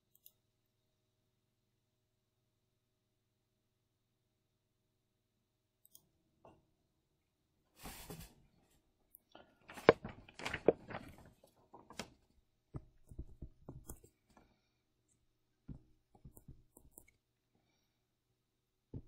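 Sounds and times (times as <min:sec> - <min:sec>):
stylus tapping on tablet: 0:12.7 - 0:14.1, 0:15.7 - 0:17.1.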